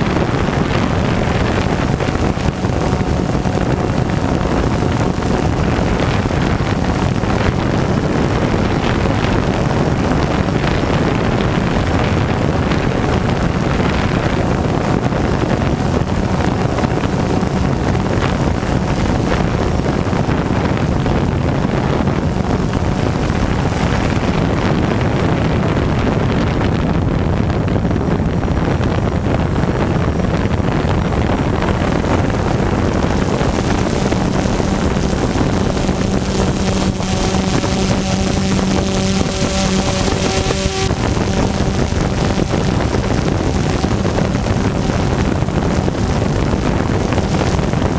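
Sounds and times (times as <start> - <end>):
drone motors and propellers: 0.0 - 47.9
wind buffeting microphone: 0.0 - 47.9.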